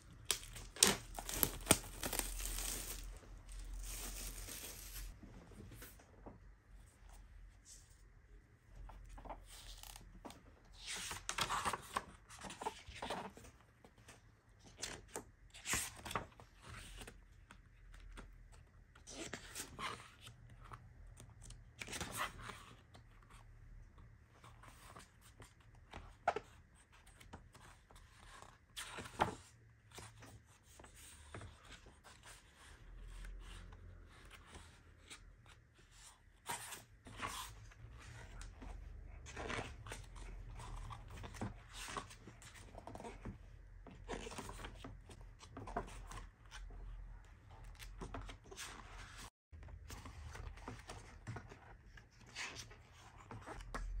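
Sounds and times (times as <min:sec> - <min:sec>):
paper pages turning: 0:00.1 - 0:05.2.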